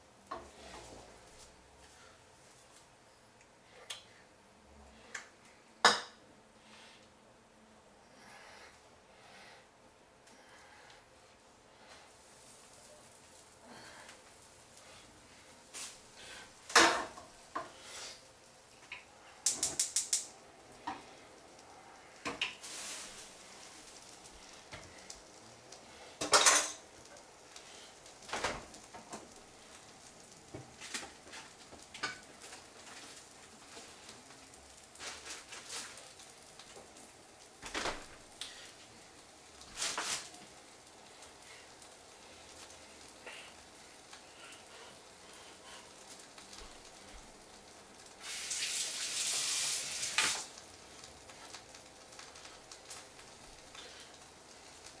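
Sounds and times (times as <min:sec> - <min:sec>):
pots and pans clattering: 0:16.7 - 0:17.7, 0:26.2 - 0:26.9.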